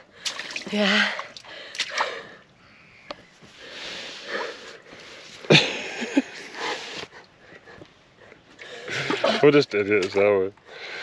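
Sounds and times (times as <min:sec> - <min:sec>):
breathy laughter: 0:05.5 - 0:06.8.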